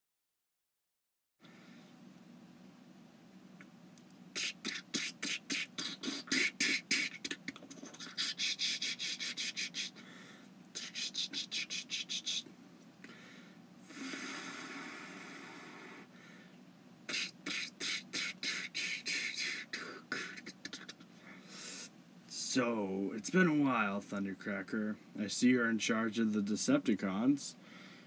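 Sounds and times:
mouth-made hissing whoosh: 0:04.3 - 0:10.0, 0:10.7 - 0:12.5, 0:13.8 - 0:16.1, 0:17.1 - 0:22.5.

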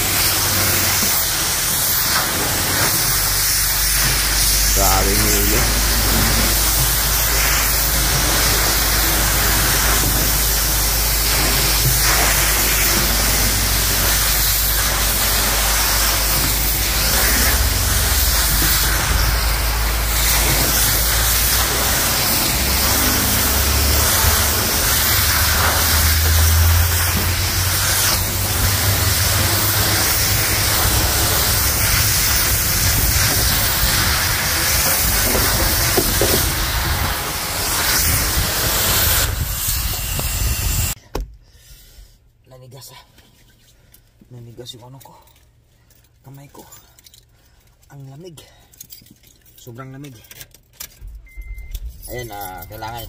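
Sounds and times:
pressure washer spraying: 0:00.0 - 0:41.0
low hum: 0:02.3 - 0:41.0.

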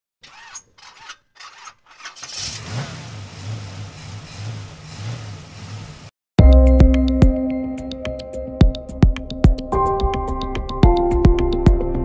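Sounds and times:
engine cranking and running: 0:00.2 - 0:06.1.

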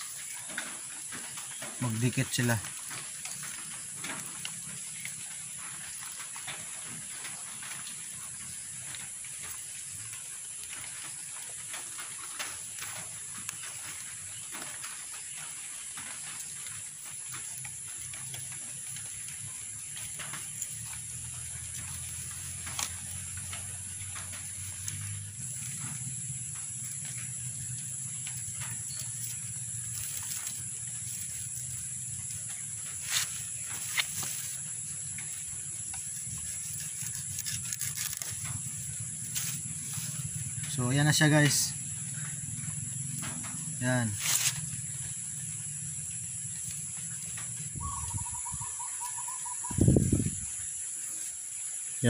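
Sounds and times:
bamboo slats clicking and rustling: 0:00.0 - 0:40.8, 0:44.1 - 0:45.1
insects trilling: 0:00.0 - 0:52.0
small scrapes and clicks: 0:33.0 - 0:34.6, 0:36.0 - 0:40.2, 0:44.2 - 0:44.7.

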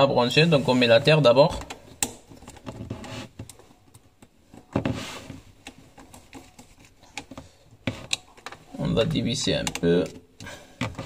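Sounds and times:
wires rustling: 0:00.0 - 0:11.0.

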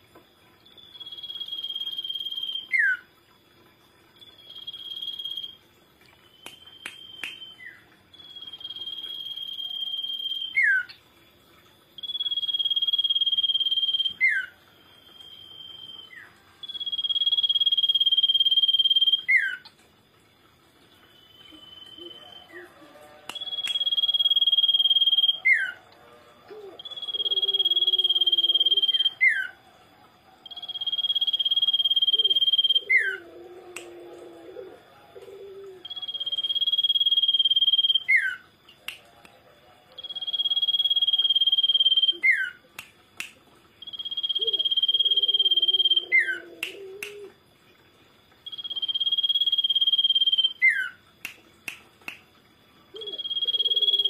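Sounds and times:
bird whistling call: 0:23.3 - 0:25.8, 0:26.8 - 0:29.5, 0:30.5 - 0:33.2, 0:40.0 - 0:42.6, 0:43.8 - 0:47.3, 0:48.5 - 0:51.0, 0:53.0 - 0:54.0.

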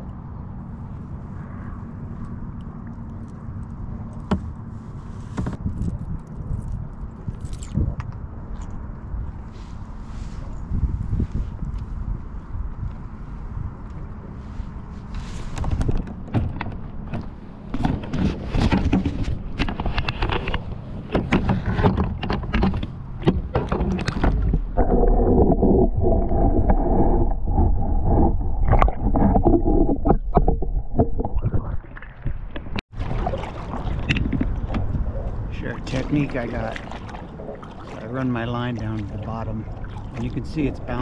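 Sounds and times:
muffled underwater water noise: 0:00.0 - 0:41.0
water splashing and gurgling: 0:17.8 - 0:41.0.

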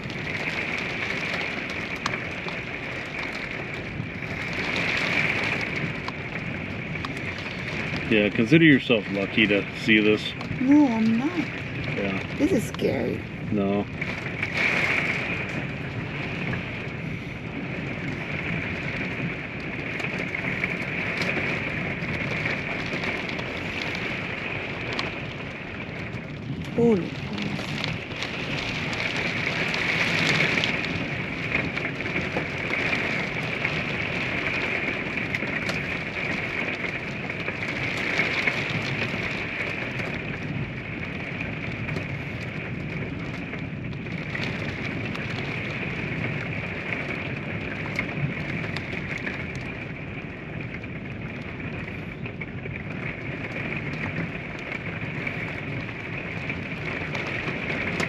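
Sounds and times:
heavy rain on a camper roof: 0:00.0 - 0:58.0
raindrop clicks: 0:00.0 - 0:58.0.

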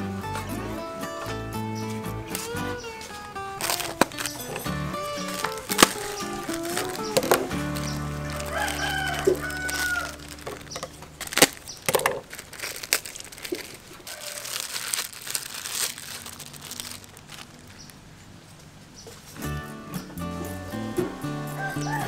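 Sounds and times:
soft background music: 0:00.0 - 0:10.8, 0:19.4 - 0:22.0
plastic bag crinkling: 0:02.3 - 0:18.1
rooster crowing: 0:08.0 - 0:10.4, 0:14.0 - 0:14.7, 0:21.4 - 0:22.0.

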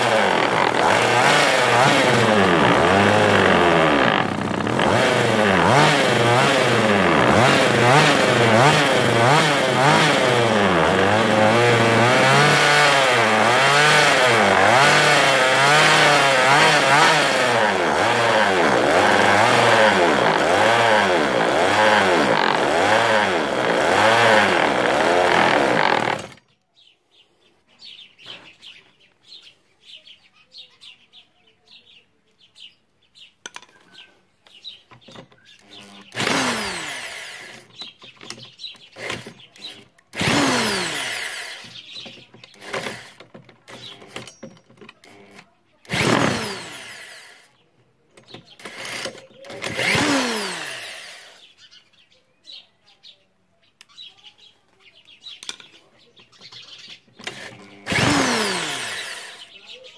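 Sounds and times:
chainsaw engine running: 0:00.0 - 0:26.4, 0:35.6 - 0:47.6, 0:48.5 - 0:51.5, 0:57.2 - 0:59.8
electric drill whirring: 0:00.0 - 0:26.4, 0:35.6 - 0:37.7, 0:39.0 - 0:41.8, 0:42.5 - 0:44.2, 0:45.0 - 0:47.5, 0:48.6 - 0:51.4, 0:57.2 - 0:59.5.

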